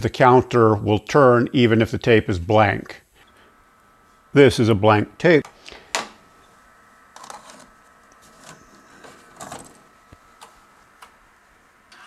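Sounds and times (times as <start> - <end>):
tape deck loading clicks and rattles: 8.4 - 9.8.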